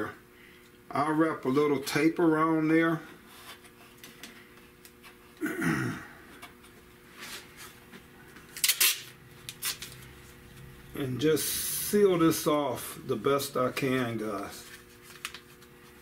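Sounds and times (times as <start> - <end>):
tape ripping off roll: 8.6 - 10.0.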